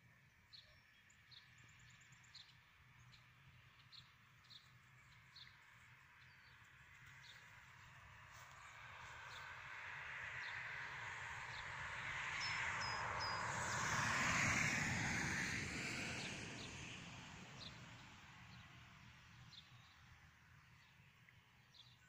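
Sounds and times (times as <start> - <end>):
road vehicle passing: 7.1 - 19.1.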